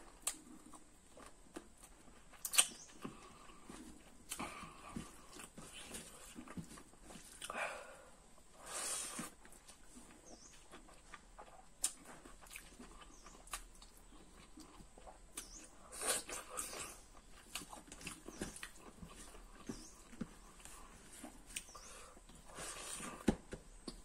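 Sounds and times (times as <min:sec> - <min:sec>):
chewing and lip-smacking: 0:00.0 - 0:07.6, 0:09.2 - 0:23.2.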